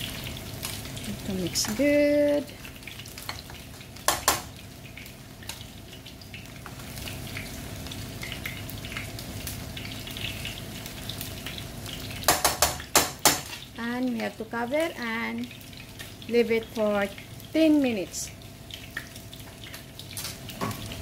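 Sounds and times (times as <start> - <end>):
spoon knocking on metal pot: 4.1 - 4.5, 12.3 - 13.5.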